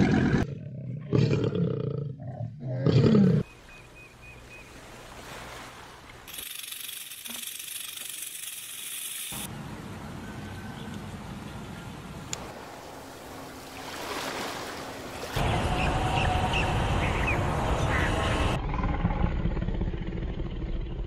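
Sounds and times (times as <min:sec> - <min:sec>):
animal growling roars: 0:00.0 - 0:03.4, 0:18.4 - 0:21.0.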